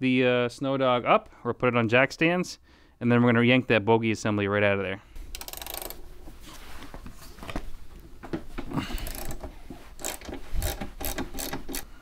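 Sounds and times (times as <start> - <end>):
ratchet wrench clicking: 5.3 - 6.0, 9.0 - 9.4, 10.0 - 11.9.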